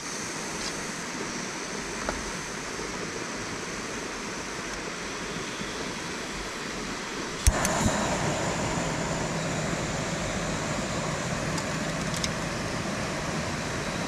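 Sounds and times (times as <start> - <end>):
small click: 7.4 - 7.8.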